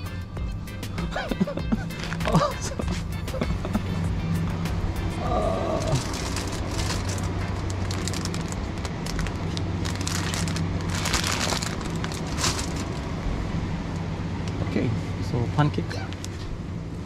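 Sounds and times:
steady low hum: 0.0 - 17.0
plastic packaging crinkling: 5.8 - 13.0.

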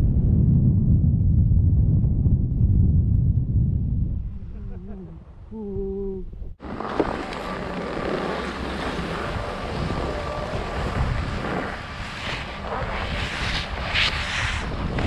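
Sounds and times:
wind rushing over microphone: 0.0 - 15.0
ski edges scraping: 6.6 - 15.0
skis hissing on snow: 6.7 - 15.0.

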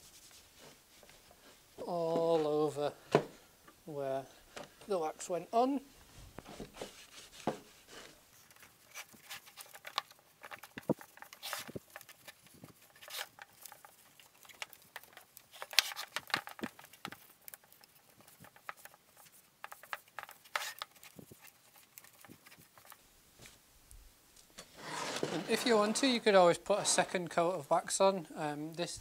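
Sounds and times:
cloth rubbing on wood: 0.0 - 2.7, 5.9 - 9.8.

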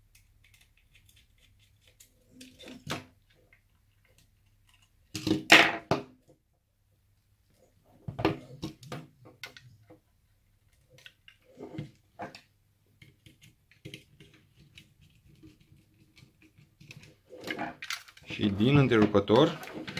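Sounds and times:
plastic clicks and clatter: 10.7 - 19.9.

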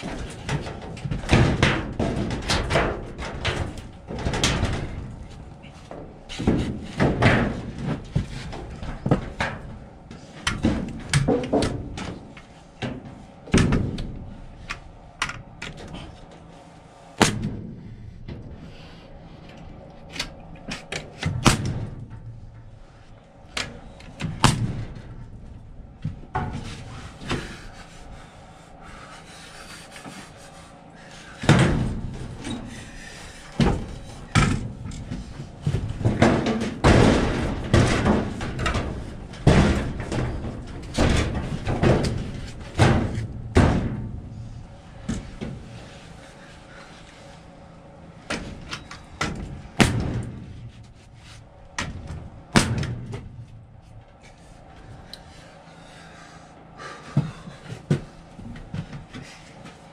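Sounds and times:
knocks of wood and tool handling: 0.0 - 16.6, 29.5 - 47.6.

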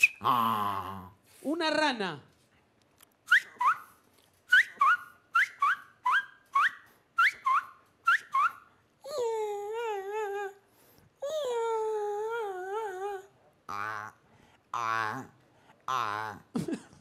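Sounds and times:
man imitating frog calls: 13.7 - 16.6.

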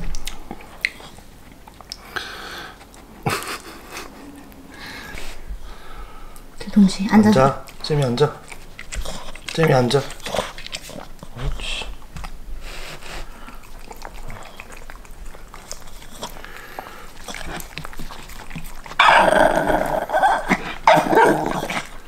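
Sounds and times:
dogs licking and eating: 0.0 - 22.0
dog growling: 13.3 - 22.0.

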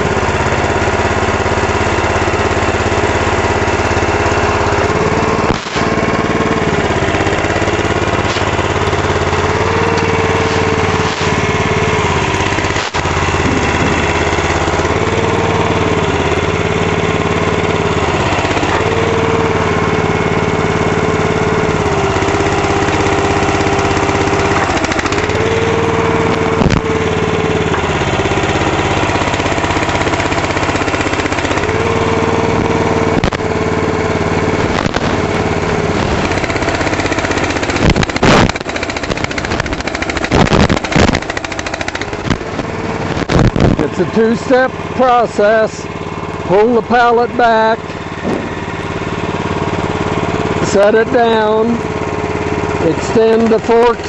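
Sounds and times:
small engine running: 0.0 - 54.0
sharp knocks: 48.2 - 48.9.

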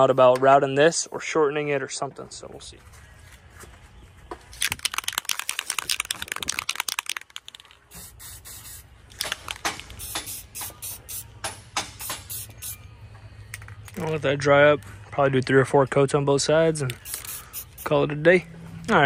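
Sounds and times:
spray can ball rattling: 4.6 - 11.3, 12.0 - 12.8, 16.9 - 18.0.

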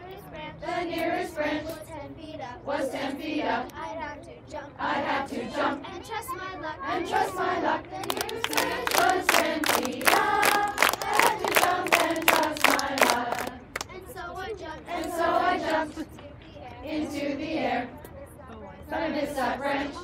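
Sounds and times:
girls singing together: 0.6 - 1.9, 2.6 - 3.8, 4.7 - 14.0, 14.7 - 18.2, 18.8 - 20.0
rhythmic hand clapping: 7.9 - 14.0.

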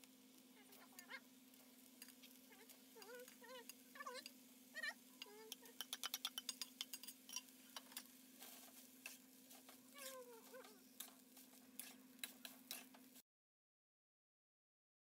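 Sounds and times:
faint steady hum: 0.0 - 13.2
metal spatula scraping a wok: 1.8 - 4.4, 5.1 - 13.2.

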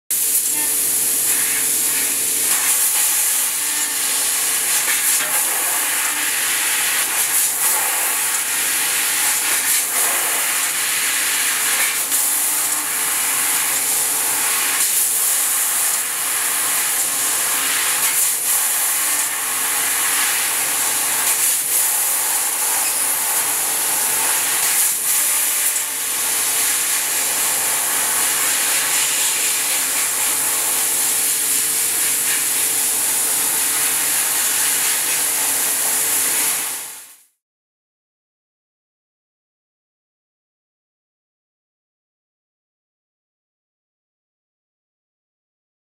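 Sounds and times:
loud hiss of gas: 0.2 - 32.6.

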